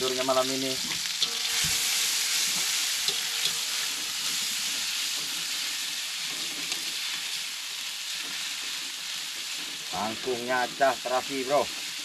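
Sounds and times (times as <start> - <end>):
prawns sizzling in a pan: 0.0 - 12.0
spatula clicking in pan: 3.0 - 3.7.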